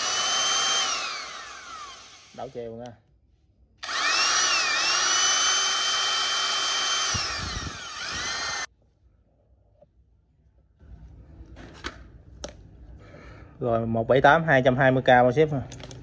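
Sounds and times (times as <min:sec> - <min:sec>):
electric drill motor whine: 0:00.0 - 0:02.6, 0:03.8 - 0:08.7.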